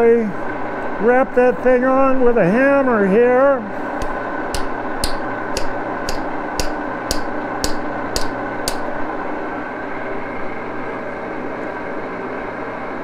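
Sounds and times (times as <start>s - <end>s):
mechanical hum: 0.0s - 13.0s
hammer taps: 4.0s - 8.9s.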